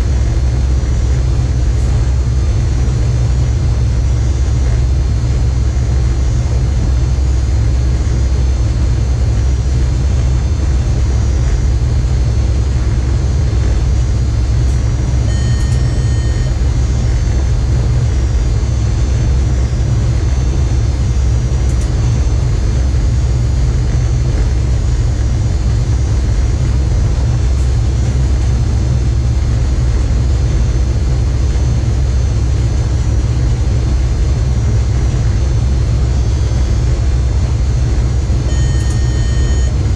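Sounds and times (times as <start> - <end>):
faint high whine: 0.0 - 39.9
train running gear rumble: 0.0 - 39.9
short electronic beep: 15.3 - 16.6, 38.5 - 39.8.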